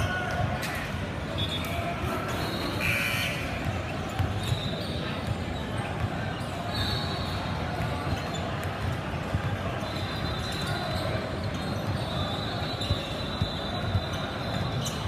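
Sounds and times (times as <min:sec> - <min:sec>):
basketball bouncing on court: 0:03.2 - 0:15.0.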